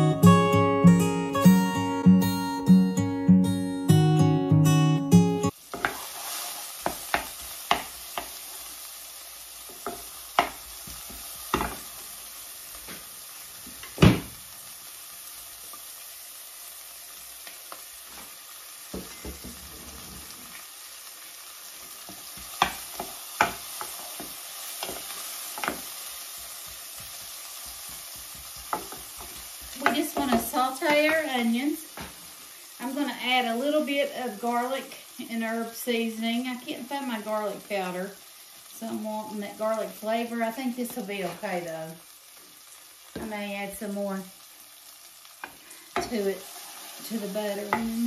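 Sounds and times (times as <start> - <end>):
onion sizzling in oil: 5.4 - 48.0
wooden spatula knocking on pan: 5.7 - 6.0, 6.8 - 8.3, 9.7 - 11.8, 18.9 - 19.9, 22.1 - 25.9, 26.6 - 31.2.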